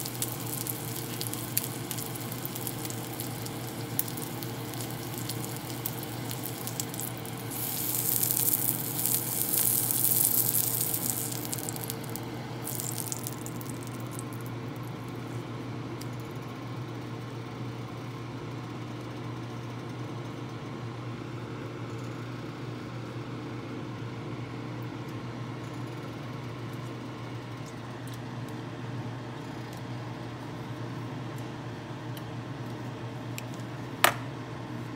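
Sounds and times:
bacon sizzling in a pan: 0.0 - 14.6
steady low hum: 0.0 - 18.0.

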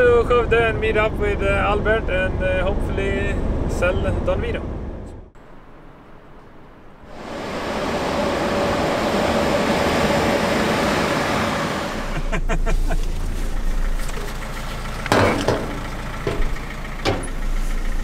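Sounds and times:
engine idling low: 0.0 - 5.3, 7.0 - 18.0
steady rushing noise: 5.4 - 12.3.

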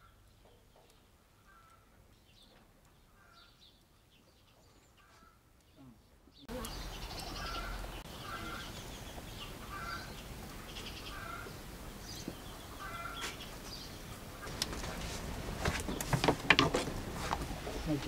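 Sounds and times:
chickens clucking: 12.5 - 18.0
sharp knocks: 15.6 - 17.0.

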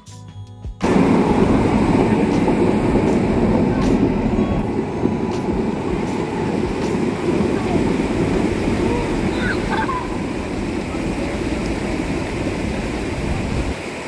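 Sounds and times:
background music: 0.0 - 9.2
loud rushing noise: 0.8 - 14.0.

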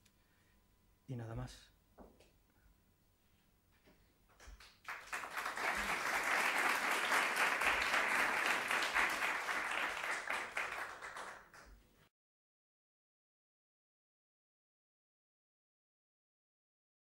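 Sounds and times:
audience applauding: 4.6 - 11.7.

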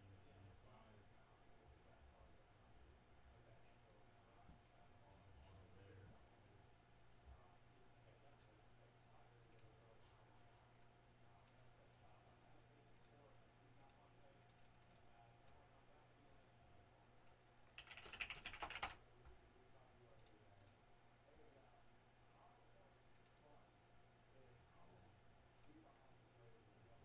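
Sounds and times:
low steady hum: 0.0 - 17.7
keyboard typing: 17.2 - 19.0.

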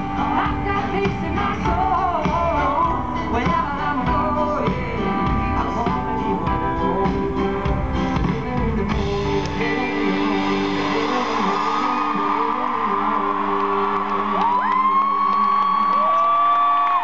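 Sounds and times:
live pop-rock band playing: 0.0 - 16.8
drums: 0.0 - 17.0
audience cheering: 10.6 - 17.0.

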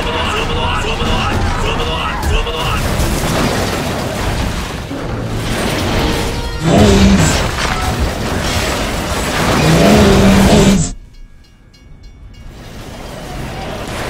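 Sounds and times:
train cars rumbling and scraping: 3.9 - 14.0.

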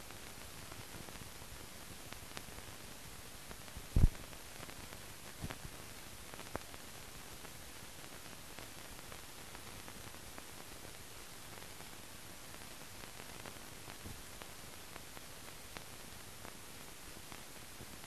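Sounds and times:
film soundtrack hiss: 0.0 - 18.0
sharp low pop: 3.9 - 4.2.

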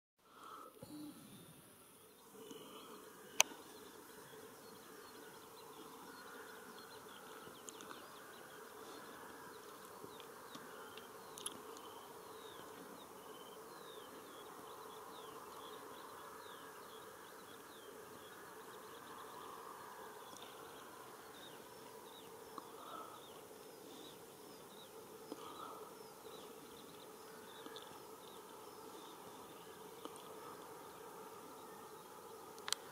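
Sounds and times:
insects buzzing: 0.3 - 32.9.

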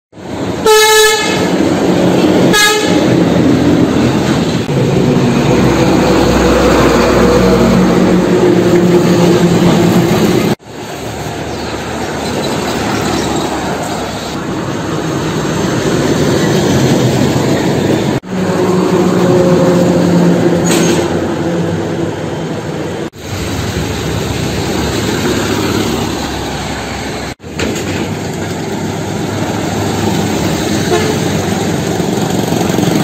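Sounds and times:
diesel trucks passing: 0.2 - 33.0
vehicle horn honking: 0.6 - 1.5, 2.5 - 3.1, 30.9 - 31.3.

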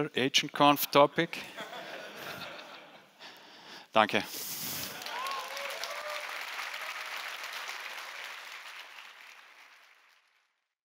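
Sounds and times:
audience applause: 4.8 - 10.6.

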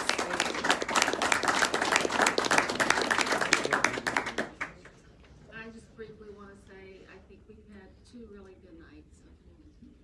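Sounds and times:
audience applauding: 0.0 - 4.9.

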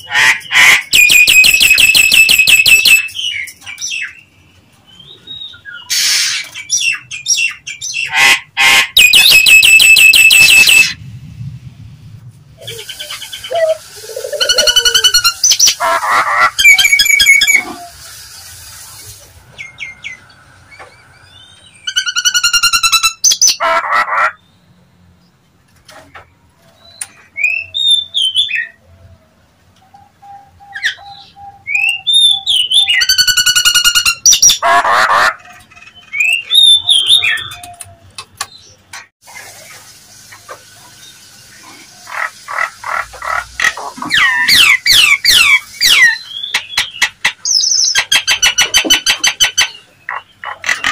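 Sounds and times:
myna whistled and harsh calls: 0.0 - 4.2, 5.0 - 11.0, 12.6 - 19.0, 41.4 - 50.9.

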